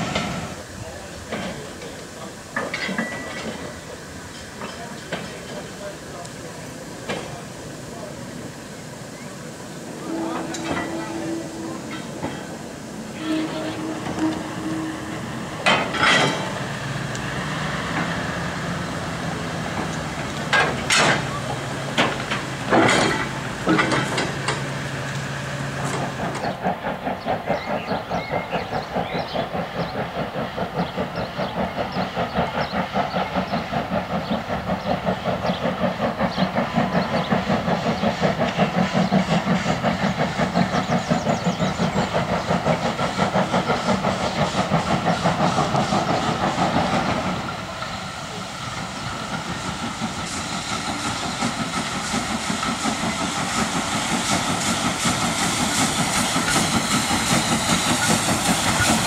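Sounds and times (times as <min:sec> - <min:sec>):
steam locomotive exhaust beats: 0:00.0 - 0:59.0
sharp metallic clanks: 0:15.5 - 0:16.7.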